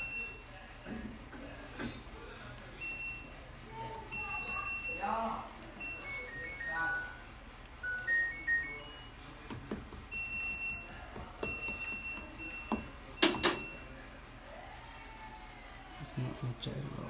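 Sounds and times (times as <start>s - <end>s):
electronic beep melody: 5.8s - 9.2s.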